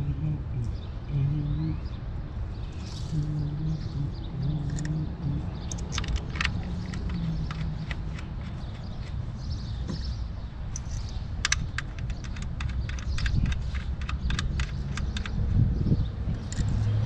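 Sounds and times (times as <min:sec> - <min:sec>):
steady low rumble: 0:00.0 - 0:17.0
hand tools clicking and rattling: 0:05.7 - 0:09.4, 0:10.7 - 0:15.6, 0:16.3 - 0:16.9.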